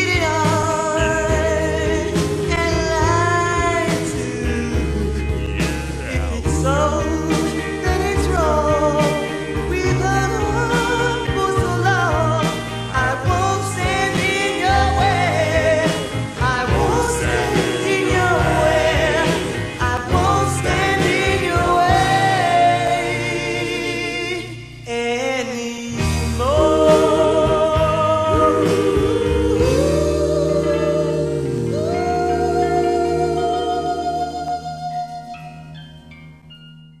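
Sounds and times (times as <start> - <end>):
lead singer: 0.0 - 35.8
group vocal harmonies: 0.0 - 35.9.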